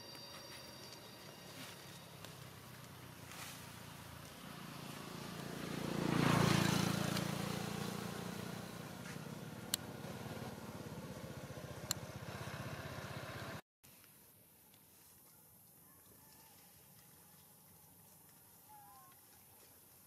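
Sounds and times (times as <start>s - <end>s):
passing vehicle engine: 1.5s - 13.6s.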